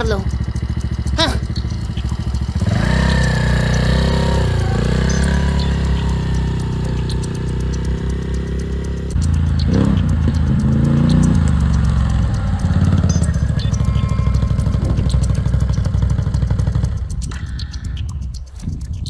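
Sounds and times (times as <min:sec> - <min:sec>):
quad bike engine revving: 0:00.0 - 0:18.9.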